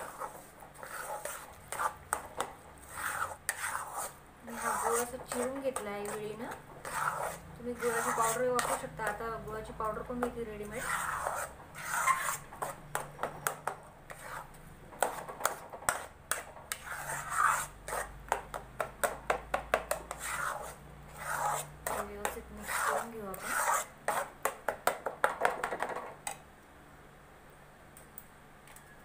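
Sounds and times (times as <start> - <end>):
spatula scraping metal pan: 0.0 - 9.2, 9.9 - 18.6, 19.8 - 24.4.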